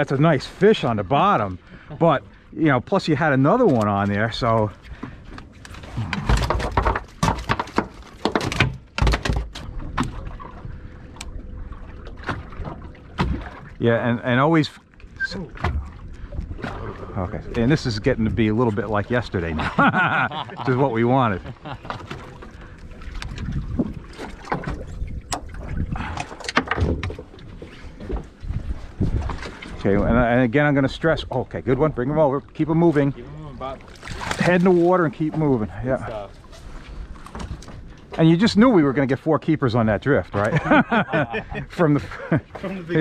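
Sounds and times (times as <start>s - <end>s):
water slapping against hull: 3.2s - 43.0s
knocks and thuds on a boat: 4.8s - 10.8s, 12.2s - 13.8s, 15.2s - 17.6s, 21.5s - 30.2s, 37.2s - 38.5s
wind buffeting microphone: 22.9s - 26.2s, 26.8s - 31.8s.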